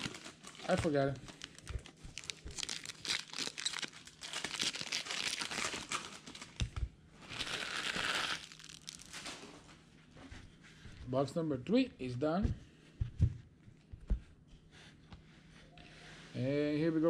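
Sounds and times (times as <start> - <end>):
foil wrappers crinkling: 0.0 - 6.6, 7.2 - 9.8.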